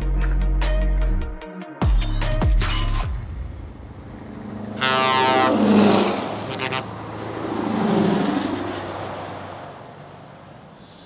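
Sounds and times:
trucks driving past: 3.0s - 11.0s.

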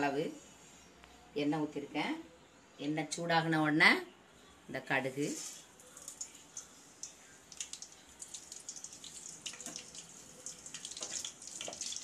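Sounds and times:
seeds crackling in hot oil: 5.2s - 12.0s.

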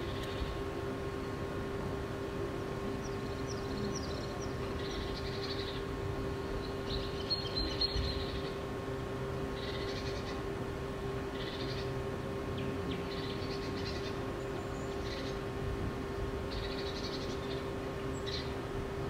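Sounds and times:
steady hum: 0.0s - 19.0s
birds chirping: 2.8s - 8.8s, 9.4s - 10.6s, 11.2s - 15.6s, 16.3s - 18.7s.

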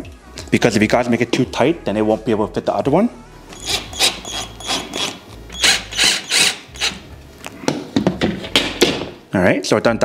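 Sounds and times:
cordless drill driving screws: 3.6s - 7.0s.

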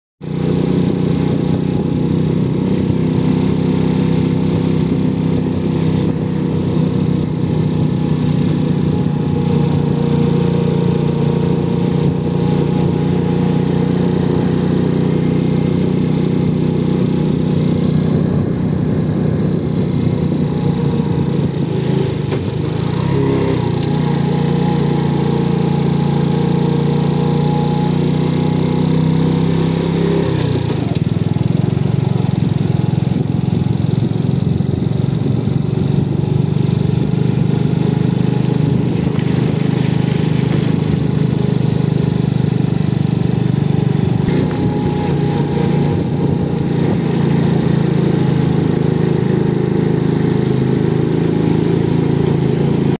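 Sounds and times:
engine running steadily: 0.2s - 52.9s.

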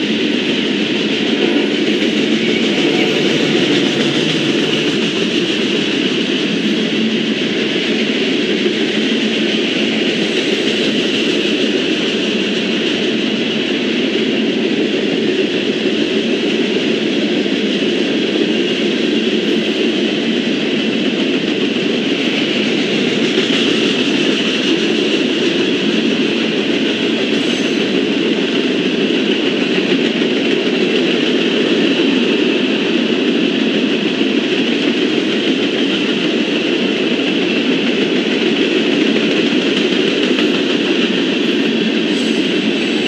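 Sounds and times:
freight train wheels on rails: 0.0s - 43.0s.

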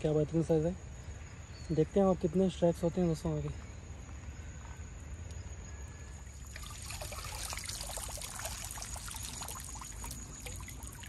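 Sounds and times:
water trickling and splashing: 6.0s - 11.0s.

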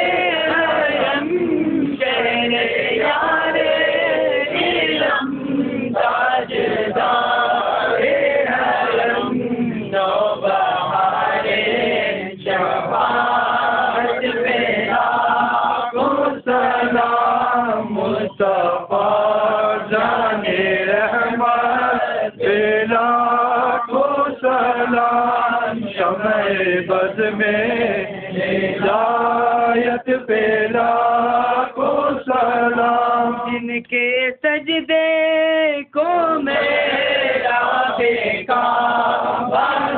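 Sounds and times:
men chanting together: 0.0s - 33.5s, 36.4s - 39.9s.

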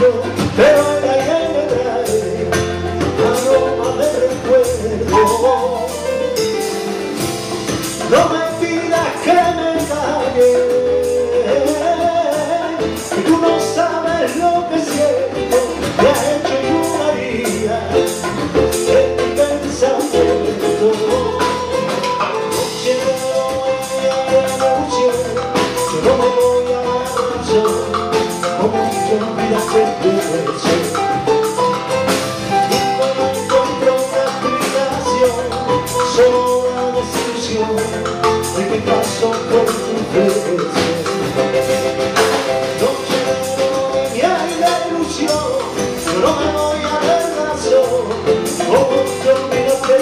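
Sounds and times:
person singing: 0.0s - 6.9s, 8.0s - 31.6s, 32.5s - 50.0s
drum kit with cymbals: 0.0s - 50.0s.

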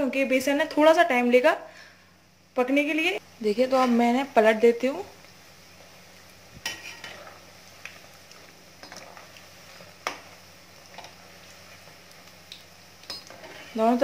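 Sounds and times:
fritters sizzling in hot oil: 0.0s - 14.0s
metal skimmer scraping a pan: 6.6s - 7.4s, 13.1s - 14.0s.

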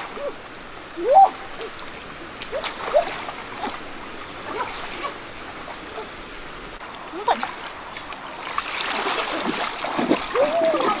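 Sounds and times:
flowing water rushing: 0.0s - 11.0s
water splashing and dripping: 0.0s - 11.0s
sharp splash: 8.4s - 11.0s.

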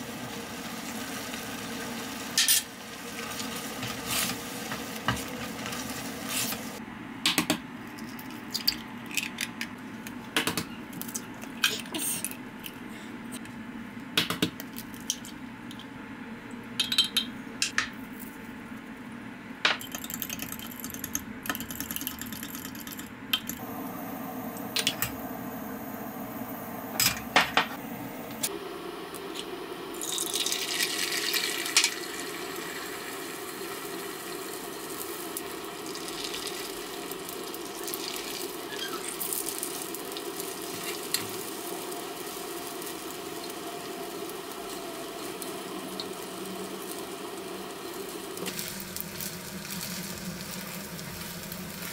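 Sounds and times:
steady low hum: 23.4s - 31.0s
egg hissing in hot pan: 23.6s - 51.9s.

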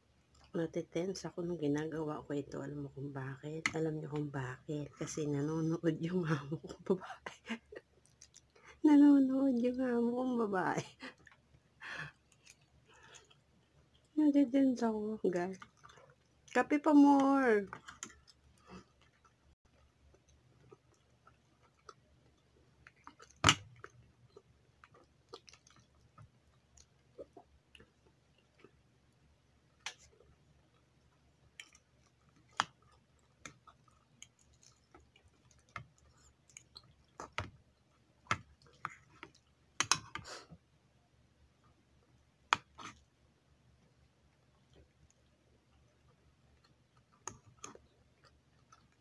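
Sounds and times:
close-up chewing: 6.6s - 8.8s, 10.9s - 14.2s, 15.3s - 16.6s, 17.6s - 40.8s, 41.6s - 49.0s.

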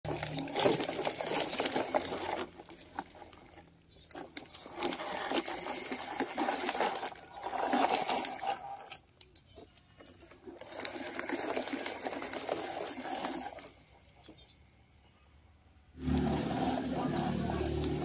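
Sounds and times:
plastic toy bodies rattling: 0.0s - 14.4s
toy truck wheels crunching gravel: 0.0s - 14.6s, 15.9s - 18.0s.

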